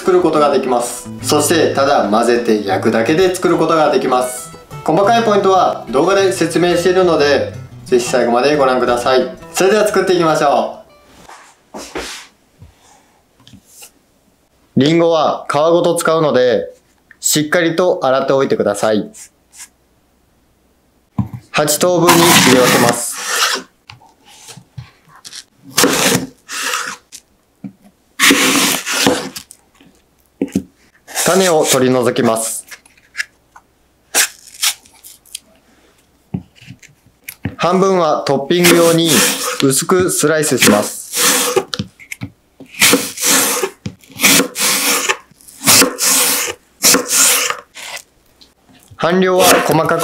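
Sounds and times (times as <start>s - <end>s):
knife slicing apple on board: 28.2s - 29.4s, 42.8s - 48.0s, 49.4s - 50.0s
knife crunching through apple: 34.2s - 35.4s.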